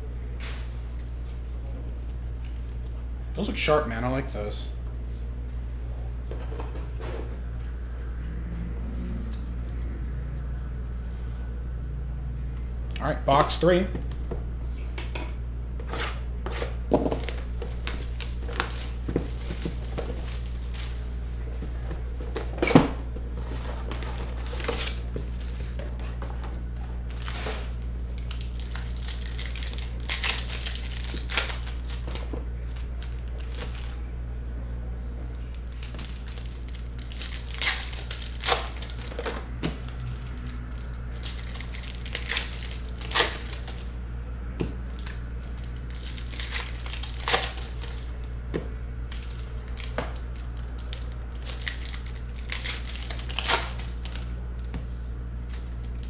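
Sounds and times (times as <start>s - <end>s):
steady low hum: 0.0s - 56.0s
wrappers and cards rustling: 15.8s - 34.1s, 35.3s - 44.0s, 44.8s - 56.0s
foil packs crinkling and tearing: 16.7s - 22.8s, 23.4s - 26.2s, 26.8s - 34.1s, 35.3s - 44.0s, 44.8s - 48.4s, 49.0s - 54.7s.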